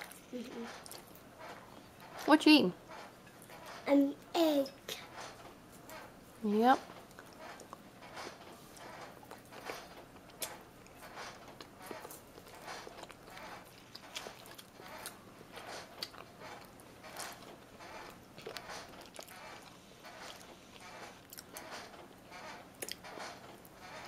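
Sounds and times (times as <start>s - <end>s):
chewing and biting: 8.8s - 21.7s, 22.8s - 23.3s.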